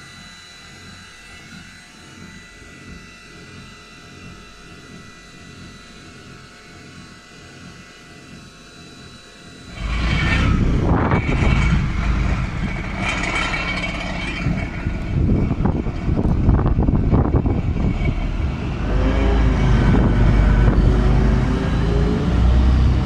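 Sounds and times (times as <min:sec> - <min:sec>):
low hum with high whining tones: 0:00.0 - 0:23.0
loud gusty rumble: 0:09.6 - 0:23.0.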